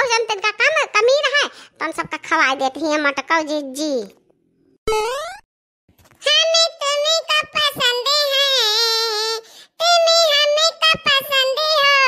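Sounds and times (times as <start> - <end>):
high cartoon voice singing: 6.2 - 12.0.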